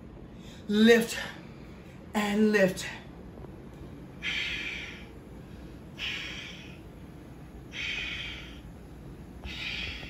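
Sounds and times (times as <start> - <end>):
woman breathing forcefully: 4.1 - 10.0.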